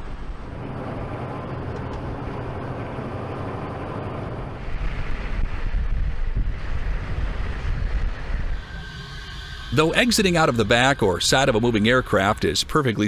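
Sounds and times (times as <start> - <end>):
wind noise on microphone: 0.0 - 12.8
diesel engines running: 0.0 - 13.0.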